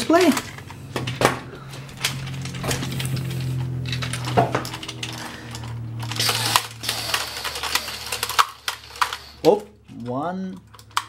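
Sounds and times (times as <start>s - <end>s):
plastic toy figures clicking: 0.0s - 1.2s, 1.8s - 11.0s.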